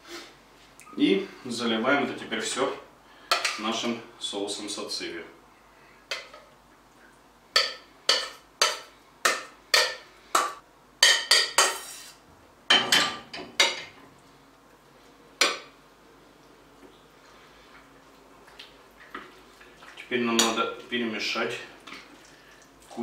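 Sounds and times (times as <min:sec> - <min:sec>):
metal saucepan clinking: 0:07.6 - 0:10.0
saucepan scraping: 0:11.0 - 0:12.2.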